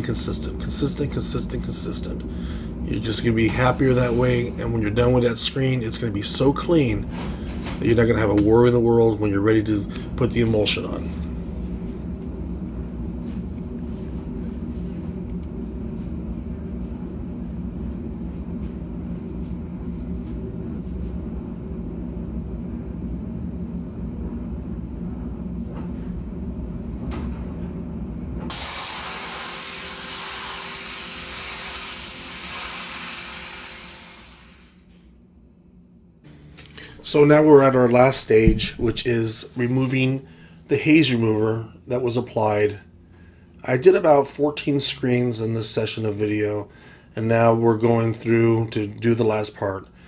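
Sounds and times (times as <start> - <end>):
low mechanical hum: 0.0 - 50.0
pressure washer spraying water: 28.5 - 34.8.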